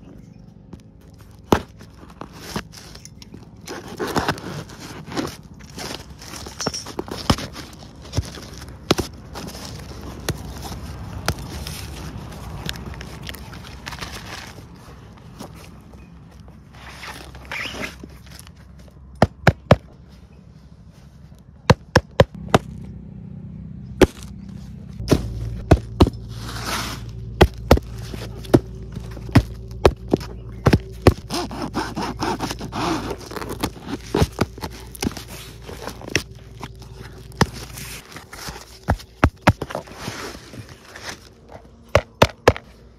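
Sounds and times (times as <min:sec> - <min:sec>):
cardboard scraping and rustling: 0:00.8 - 0:19.0, 0:24.1 - 0:42.8
low hum: 0:22.3 - 0:42.9.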